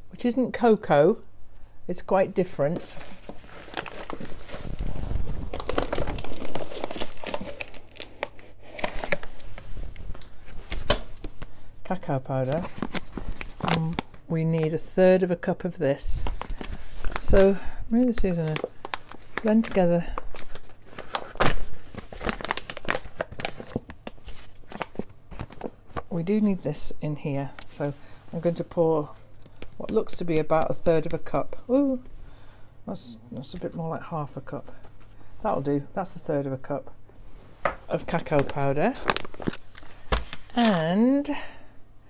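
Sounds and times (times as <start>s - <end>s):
plastic packets crinkling: 2.8s - 11.5s, 16.1s - 26.1s, 37.9s - 40.9s.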